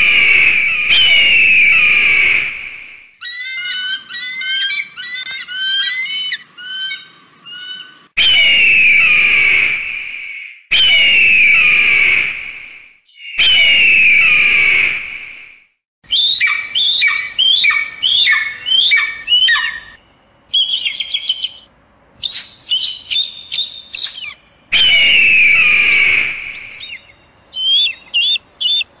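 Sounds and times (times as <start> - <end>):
eagle screaming: 3.2 - 9.7, 13.2 - 14.8, 24.0 - 28.9
sharp falling eagle calls: 16.1 - 20.0, 22.2 - 28.9.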